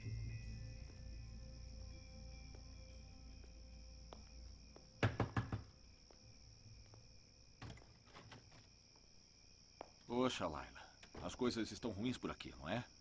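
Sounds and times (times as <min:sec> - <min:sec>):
crickets chirping: 0:00.0 - 0:13.0
knocks on wooden door: 0:05.0 - 0:05.8.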